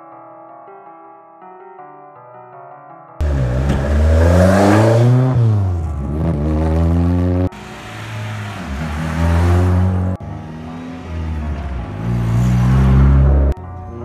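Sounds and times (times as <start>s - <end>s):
car engine revving: 3.2s - 13.6s.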